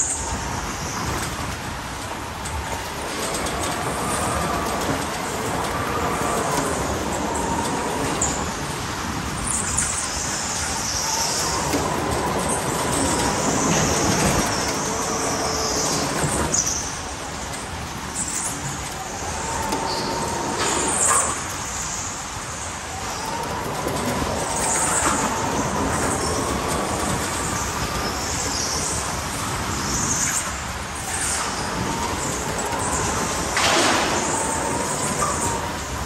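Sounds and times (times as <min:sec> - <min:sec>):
rolling and wind noise: 0:00.0 - 0:36.0.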